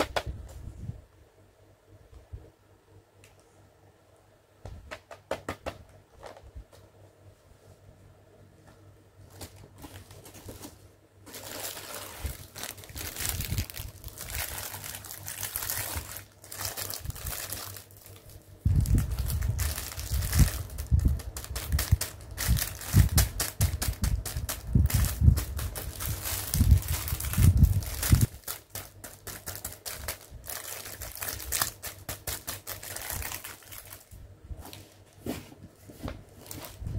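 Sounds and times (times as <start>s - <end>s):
plastic packaging crinkling: 9.3s - 34.2s.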